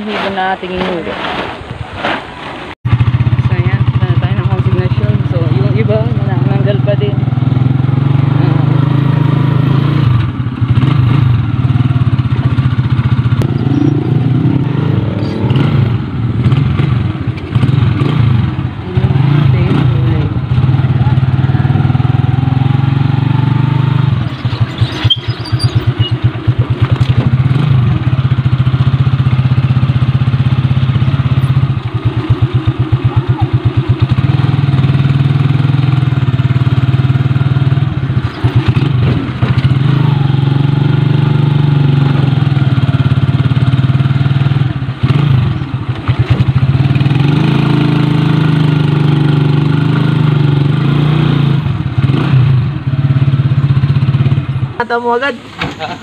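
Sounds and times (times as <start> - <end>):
motorcycle engine running: 2.9 - 56.0.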